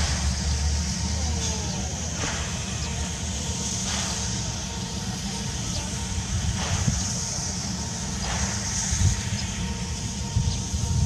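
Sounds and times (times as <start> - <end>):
low rumble and hiss: 0.0 - 11.0
steam locomotive chuffing: 0.0 - 11.0.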